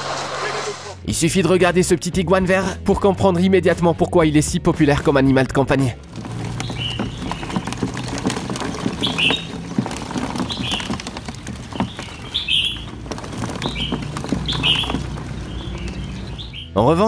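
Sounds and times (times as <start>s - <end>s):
claws scratching on plastic tub: 6.0s - 16.6s
bird chirping: 6.1s - 17.0s.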